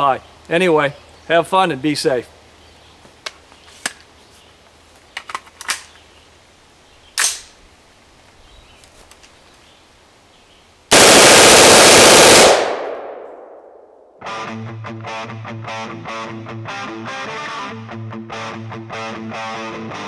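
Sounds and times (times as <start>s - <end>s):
metallic clicks of gun handling: 5.2s - 6.0s, 7.2s - 7.6s
suppressed automatic gunfire burst: 10.9s - 13.2s
gunfire echo: 10.9s - 14.1s.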